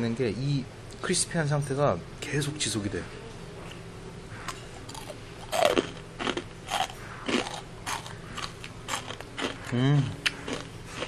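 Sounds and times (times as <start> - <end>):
steady low hum: 0.0 - 11.0
crunching and chewing: 4.5 - 11.0.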